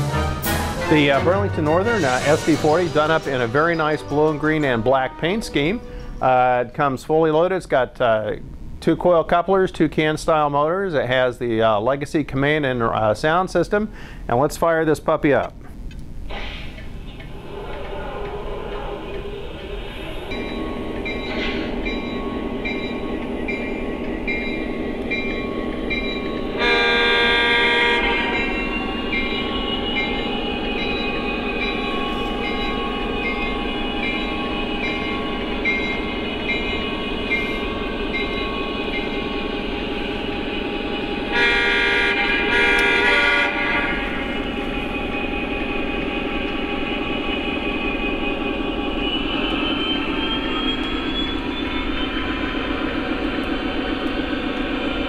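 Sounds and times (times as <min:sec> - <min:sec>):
horn blasts: 0:00.0 - 0:06.3, 0:20.3 - 0:52.3
rising whine: 0:16.8 - 0:55.0
diesel engine running: 0:18.2 - 0:55.0
bell ringing: 0:20.0 - 0:40.0.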